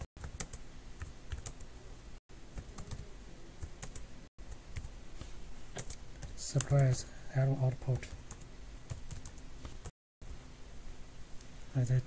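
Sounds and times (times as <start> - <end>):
computer keyboard typing: 0.0 - 1.7, 2.6 - 4.9, 5.8 - 7.0, 7.8 - 9.4.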